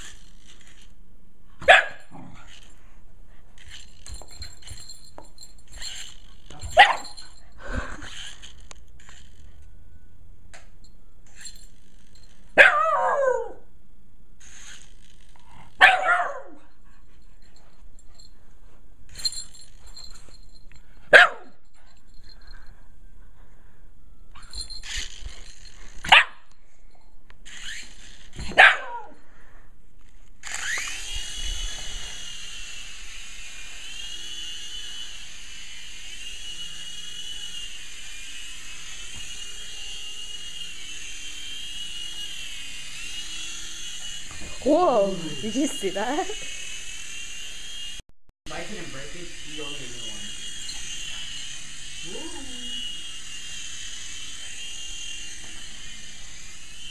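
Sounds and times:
toy helicopter motor whine: 0.0 - 1.0, 2.1 - 2.8, 3.4 - 12.6, 14.4 - 15.9, 19.1 - 20.4, 24.3 - 26.2, 27.4 - 29.0, 30.0 - 56.9
dog barking: 1.6 - 2.0, 12.6 - 13.6, 15.8 - 16.6, 21.1 - 21.5, 26.1 - 26.4, 28.6 - 29.2.

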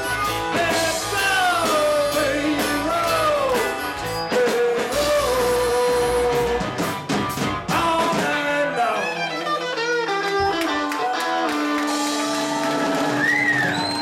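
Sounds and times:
harmonica: 0.0 - 6.9, 8.6 - 12.0
electric guitars: 0.0 - 14.0.

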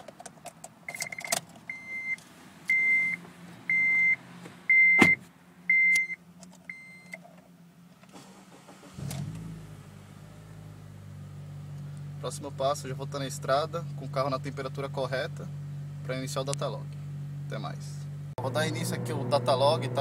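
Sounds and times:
car engine starting and running: 0.0 - 20.0
dashboard chime beeping: 0.9 - 7.1.

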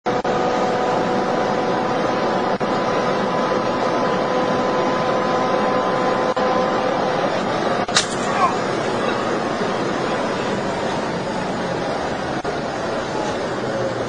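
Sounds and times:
wind and road noise: 0.0 - 14.0
windscreen cracking: 7.8 - 8.6.

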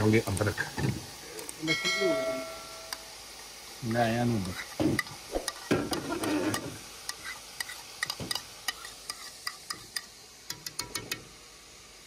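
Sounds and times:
chicken sizzling in oil: 0.0 - 12.0
scraping on steel plate: 5.3 - 7.8
sharp metal clicks and taps: 9.4 - 11.2.

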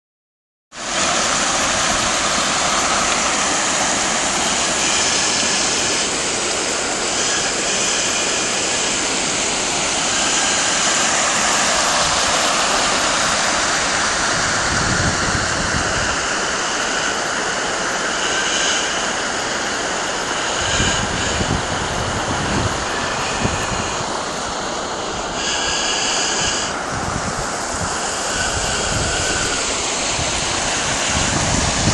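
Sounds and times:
floodwater rushing: 0.8 - 31.9
wind buffeting microphone: 8.4 - 18.7, 19.8 - 31.9.

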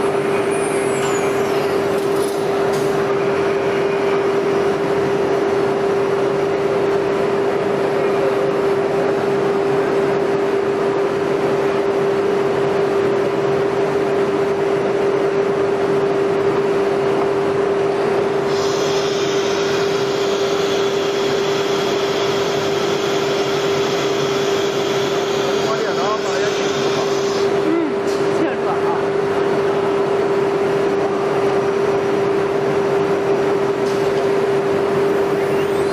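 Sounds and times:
router spindle high whine: 18.4 - 27.7, 35.1 - 35.9.

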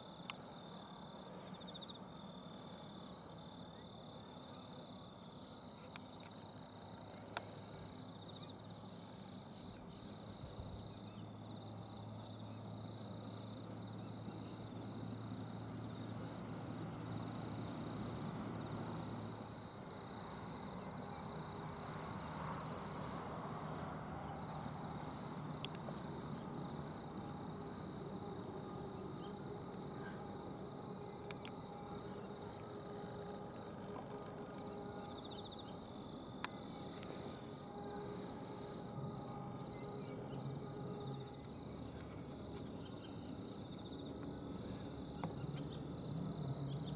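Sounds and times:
insects whining: 0.0 - 46.9
low hum: 15.4 - 46.9.

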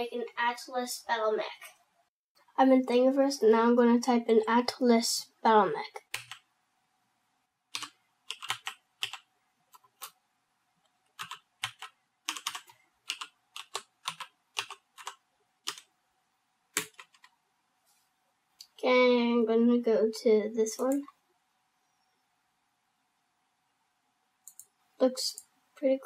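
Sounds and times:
computer keyboard typing: 6.0 - 6.5, 7.7 - 10.2, 11.1 - 15.9, 16.8 - 17.3, 24.4 - 24.7.

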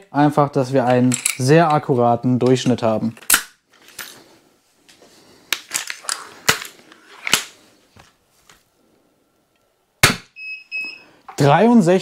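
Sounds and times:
short electronic beeps: 10.4 - 11.1.

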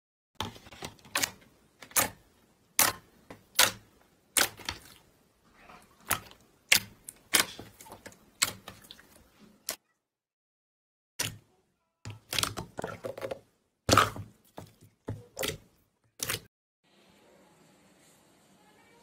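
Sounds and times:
slime clicking and popping: 2.8 - 3.8.

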